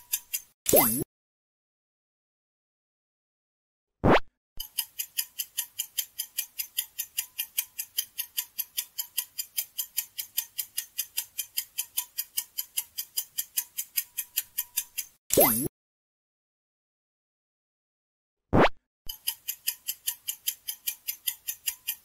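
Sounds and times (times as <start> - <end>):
rapid clock ticking: 0.0 - 0.6, 4.6 - 15.2, 19.1 - 22.0.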